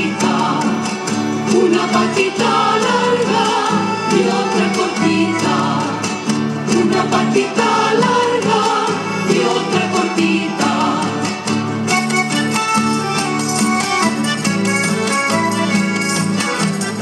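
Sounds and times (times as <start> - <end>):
person singing: 0.0 - 11.5
strummed guitar: 0.0 - 17.0.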